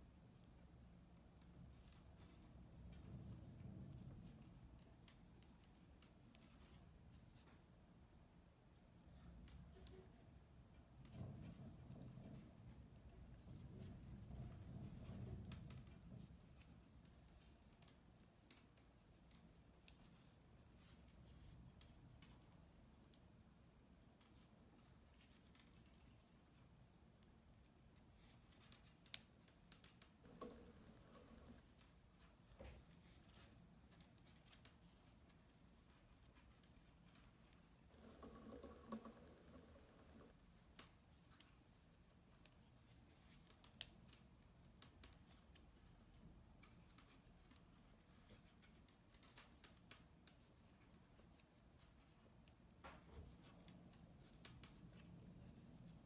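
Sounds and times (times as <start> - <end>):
knitting needles clicking: 4.0 - 7.6, 8.8 - 56.0
metal knitting needles clicking: 28.2 - 30.5, 42.2 - 45.8, 46.6 - 52.8, 53.5 - 55.6.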